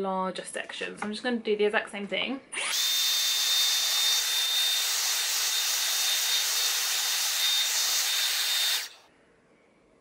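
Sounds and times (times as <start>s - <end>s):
hair styler fan rushing air: 2.6s - 9.0s.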